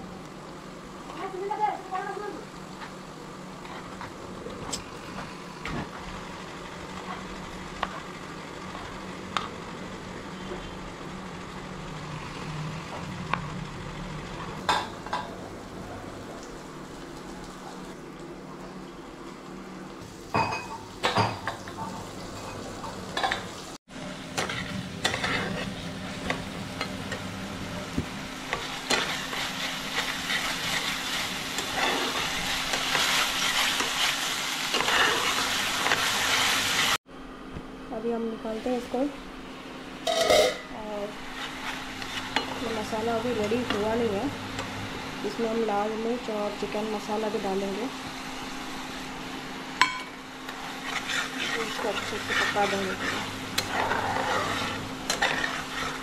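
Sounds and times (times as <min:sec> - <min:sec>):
onions sizzling in frying pan: 0:00.0 - 0:18.0, 0:18.7 - 0:37.0, 0:40.0 - 0:56.0
spatula scraping pan: 0:24.4 - 0:26.9, 0:28.5 - 0:37.0, 0:41.2 - 0:43.9, 0:50.5 - 0:56.0.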